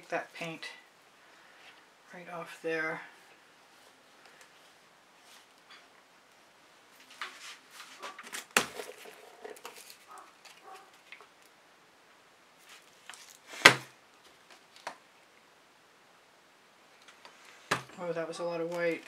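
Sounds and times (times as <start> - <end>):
soft clicks and rustles: 3.2 - 11.6, 12.6 - 13.5, 14.1 - 15.4, 16.9 - 18.0.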